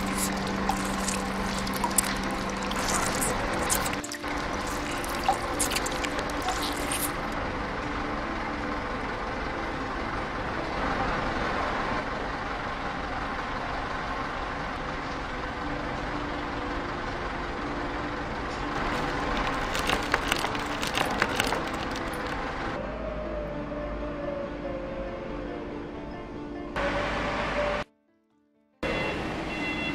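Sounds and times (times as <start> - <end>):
crackling: 0.0 - 7.4, 18.8 - 22.8.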